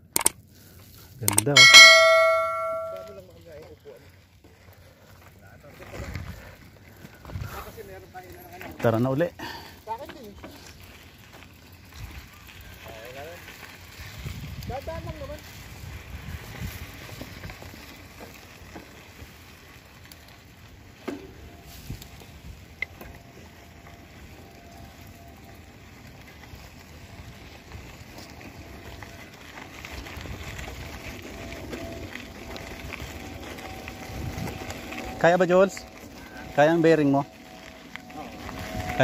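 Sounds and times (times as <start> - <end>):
bike tyres on gravel: 0.0 - 39.0
bike rattle: 1.3 - 3.2, 26.0 - 39.0.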